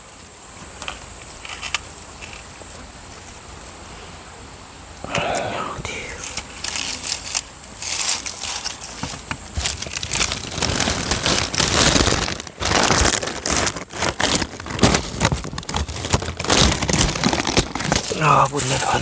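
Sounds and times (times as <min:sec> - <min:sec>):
hand rustling in hive debris: 0:05.2 - 0:19.0
scattered crackles and knocks: 0:06.3 - 0:19.0.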